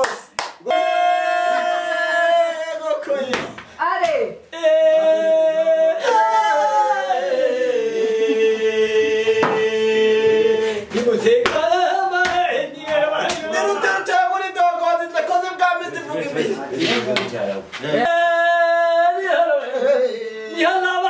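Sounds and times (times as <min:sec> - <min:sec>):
man singing long notes: 0:04.5 - 0:14.0, 0:17.9 - 0:21.0.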